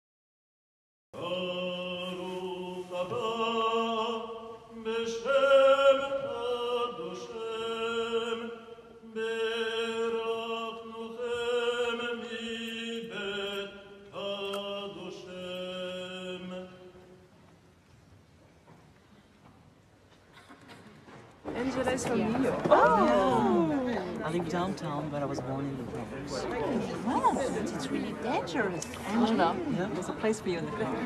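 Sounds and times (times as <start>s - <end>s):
slow liturgical chant: 1.2s - 17.9s.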